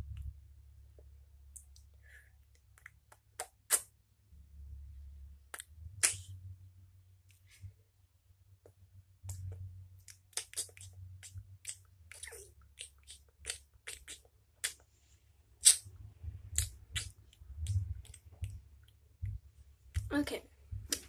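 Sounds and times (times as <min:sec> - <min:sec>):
steady low hum: 0:14.8 - 0:21.0.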